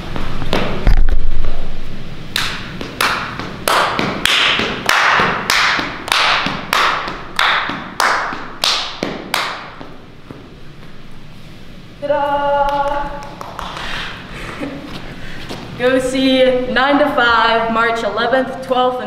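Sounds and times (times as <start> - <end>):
hand claps echoing: 2.3 - 10.0, 12.6 - 14.2.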